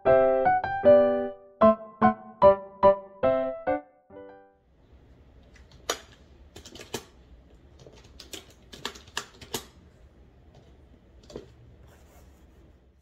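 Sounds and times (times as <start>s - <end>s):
computer keyboard typing: 5.7s - 9.8s.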